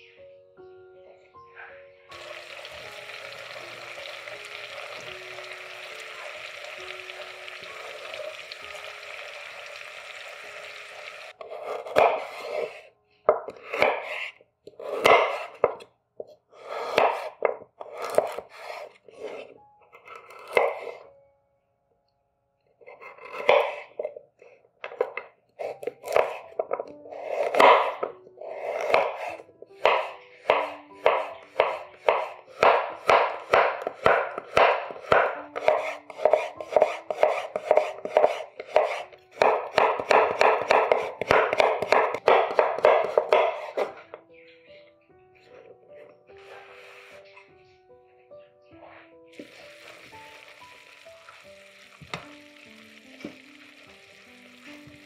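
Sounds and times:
soft background music: 0.0s - 55.0s
knife cutting food on board: 11.4s - 21.0s, 22.9s - 24.2s, 24.9s - 44.0s.

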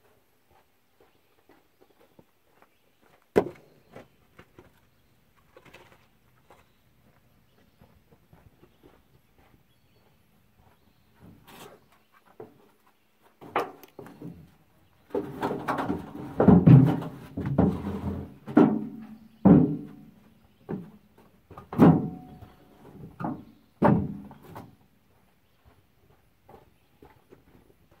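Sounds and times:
heavy metallic clanks and thumps: 15.2s - 20.0s, 21.5s - 24.4s.

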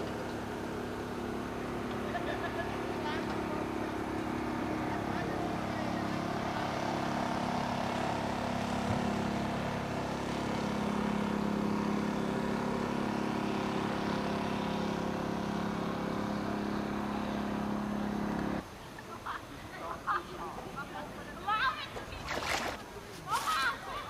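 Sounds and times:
engine droning: 0.0s - 18.6s.

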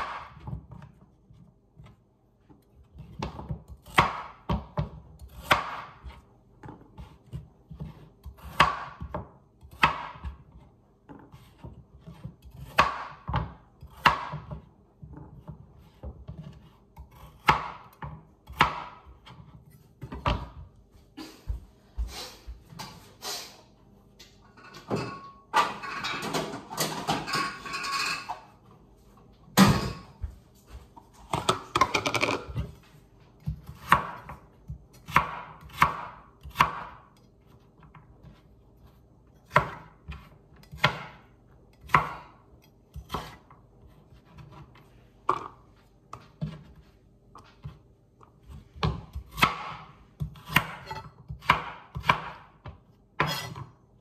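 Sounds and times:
knife slicing carrots on board: 2.6s - 20.6s, 33.4s - 45.5s, 48.4s - 53.7s
kitchen items clattering: 24.4s - 28.6s.

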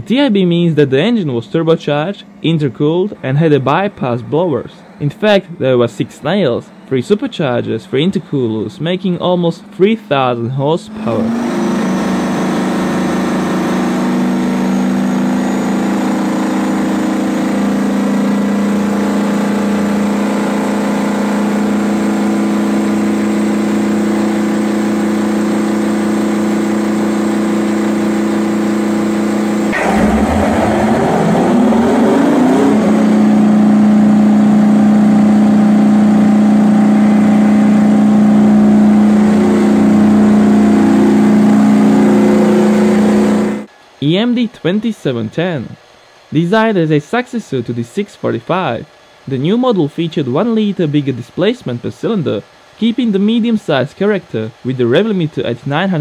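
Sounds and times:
diesel engine running: 0.0s - 43.7s.

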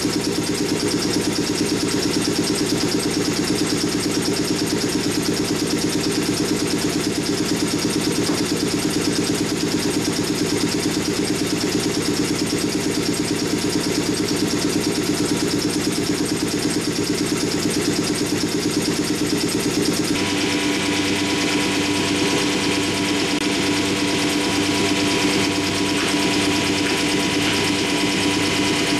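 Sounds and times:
vacuum pump humming and hissing: 19.8s - 28.9s.

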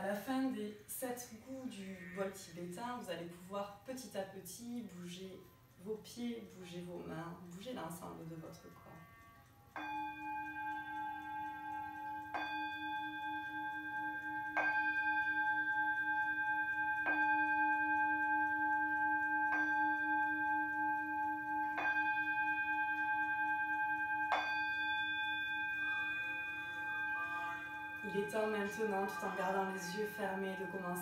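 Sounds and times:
singing bowl struck with a mallet: 9.8s - 31.0s.

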